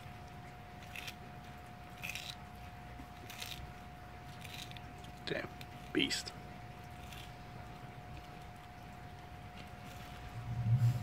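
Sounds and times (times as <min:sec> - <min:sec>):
low droning hum: 0:00.0 - 0:11.0
tortoise crunching pepper: 0:00.0 - 0:11.0.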